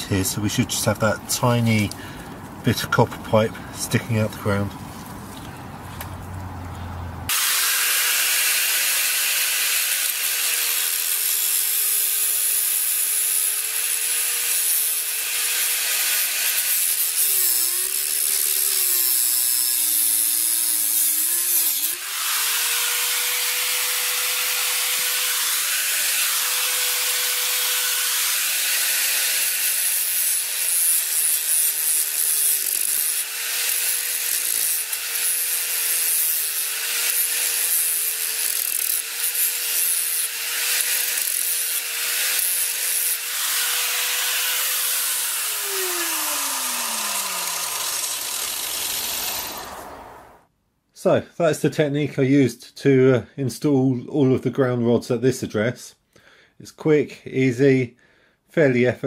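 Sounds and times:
angle grinder cutting metal pipe: 7.3s - 50.1s.

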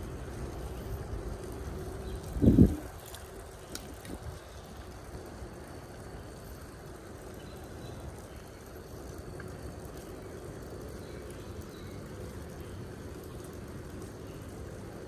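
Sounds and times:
bicycle tyres rolling on concrete: 0.0s - 15.0s
wind over microphone: 2.1s - 4.6s.

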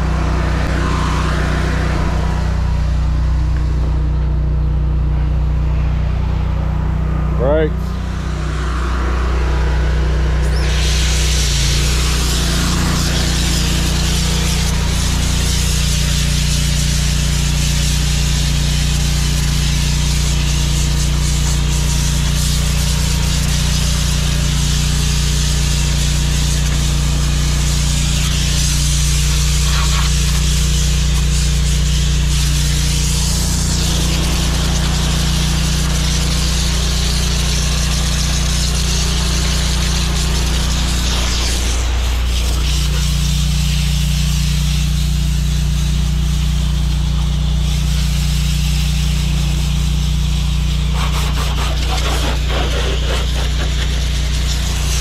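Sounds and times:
engine droning: 0.0s - 55.0s
water hissing from hose nozzle: 10.4s - 55.0s.

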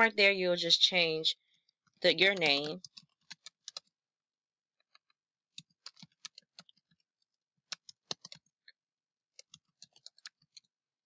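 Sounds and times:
faint keyboard typing: 2.1s - 3.9s, 4.8s - 7.0s, 7.7s - 8.5s, 9.4s - 10.7s.

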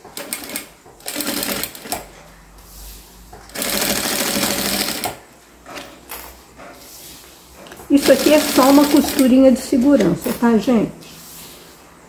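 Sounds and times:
sewing machine stitching: 0.0s - 2.1s, 3.4s - 6.0s, 7.8s - 10.4s.

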